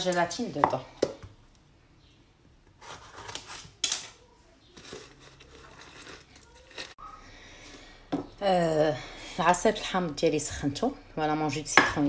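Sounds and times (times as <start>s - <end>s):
lemon scraping and squishing on reamer: 4.6s - 7.0s.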